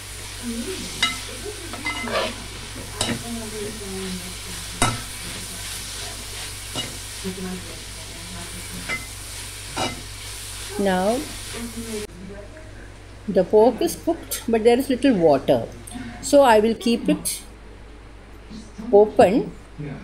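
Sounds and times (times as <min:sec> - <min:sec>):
vegetables sizzling in oil: 0:00.0 - 0:12.1
metal spoon clinking on pan: 0:00.9 - 0:02.4, 0:03.0 - 0:03.3, 0:04.8 - 0:05.4, 0:06.7 - 0:07.0, 0:08.8 - 0:09.2, 0:09.8 - 0:10.1.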